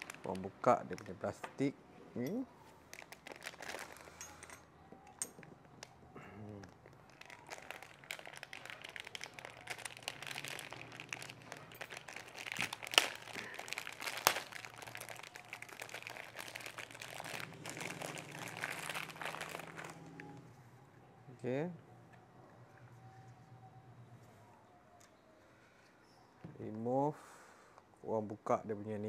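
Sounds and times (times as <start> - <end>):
plastic wrapping crinkling: 0.0 - 1.4, 2.3 - 20.4.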